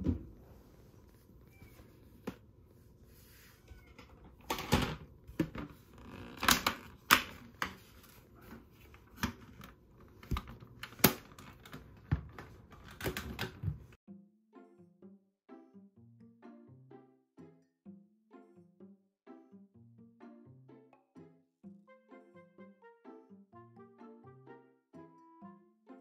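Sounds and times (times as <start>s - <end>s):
clicks and knocks of handling: 8.5s - 13.9s.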